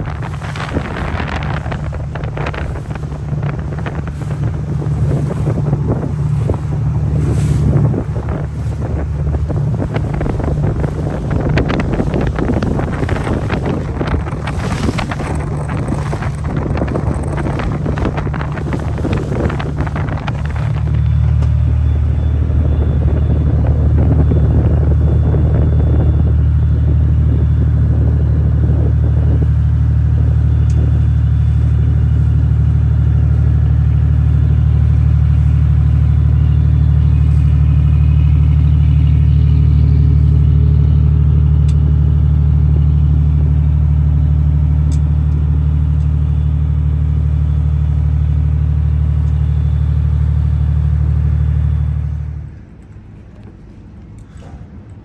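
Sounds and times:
wind buffeting microphone: 0.0s - 41.9s
boat diesel engine droning: 0.0s - 55.0s.

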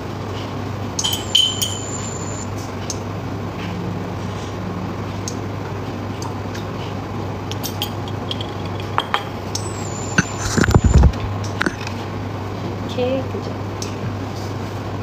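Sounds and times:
induction hob hum: 0.0s - 7.6s, 8.9s - 12.5s.

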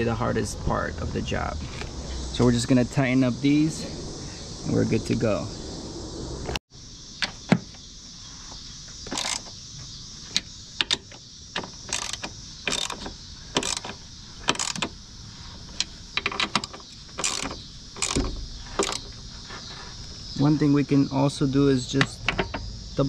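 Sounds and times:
socket ratchet clicking: 9.1s - 9.4s, 10.8s - 14.9s, 15.8s - 19.1s.

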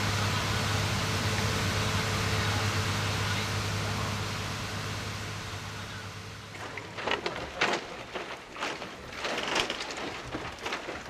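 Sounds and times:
scuffs and knocks: 6.6s - 11.0s.

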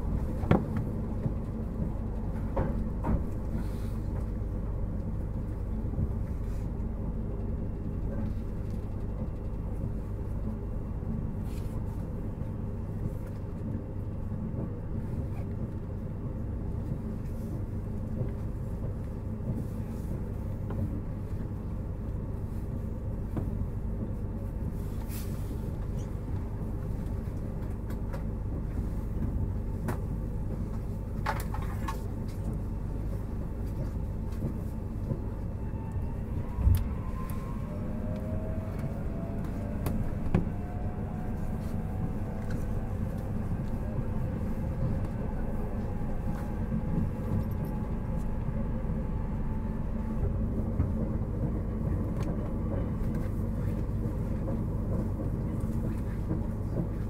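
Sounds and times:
train wheels rumbling on rail: 0.0s - 57.0s
inverter whine gliding in pitch: 35.4s - 50.2s.

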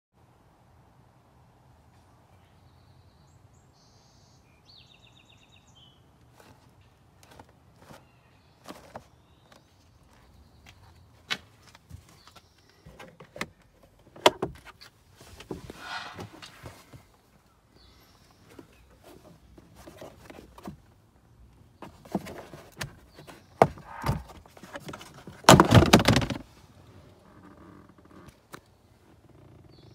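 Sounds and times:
brief rustle: 14.6s - 17.1s
glove box opening knock: 21.8s - 26.4s.

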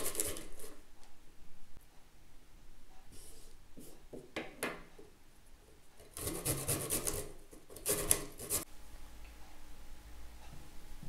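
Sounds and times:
ginger grated on metal grater: 6.1s - 8.7s.

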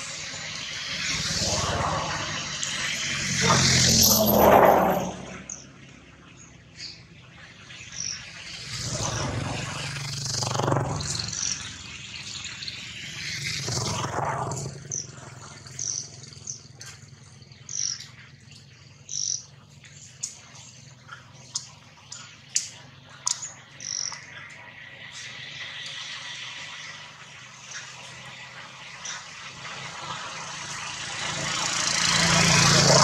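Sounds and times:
birds chirping: 0.0s - 29.6s
low rushing noise: 0.4s - 5.5s.

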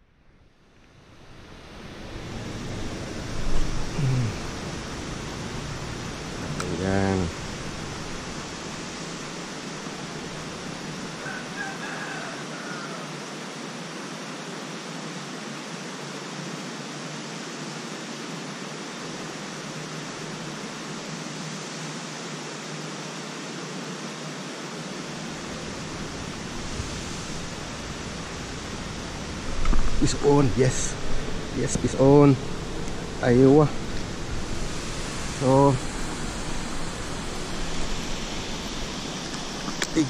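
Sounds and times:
steady outdoor hiss: 0.0s - 40.0s
rooster crowing faintly: 11.2s - 13.2s.

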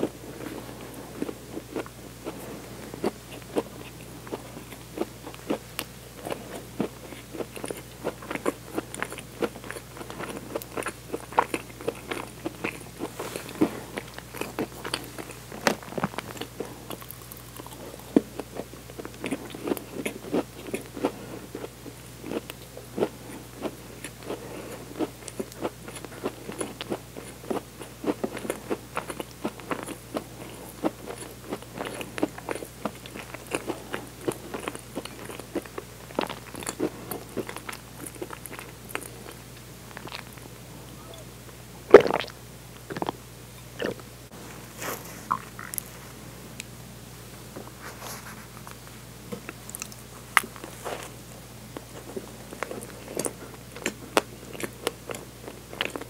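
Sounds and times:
faint low hum: 0.0s - 56.0s
chewing with wet mouth clicks: 3.3s - 40.4s, 49.5s - 50.7s, 51.8s - 56.0s.

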